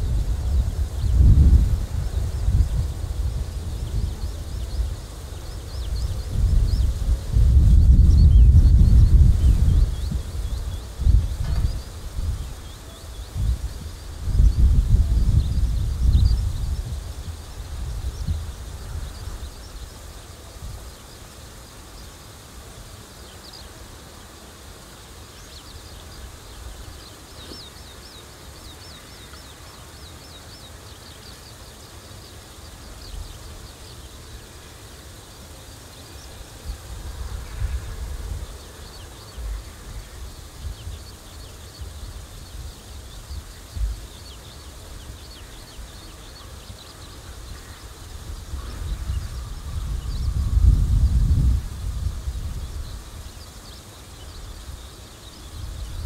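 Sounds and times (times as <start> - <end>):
wind gusting on microphone: 0.0 - 21.4, 36.1 - 56.0.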